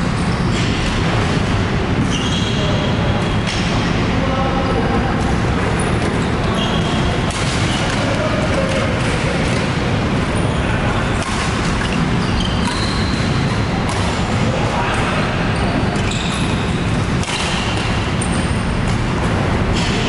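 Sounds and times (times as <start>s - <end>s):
loud hall din: 0.0s - 20.0s
shoes squeaking on court floor: 2.0s - 3.4s, 5.7s - 14.4s, 15.0s - 19.1s
racket striking shuttlecock: 7.1s - 9.8s, 11.1s - 14.4s, 16.6s - 19.1s.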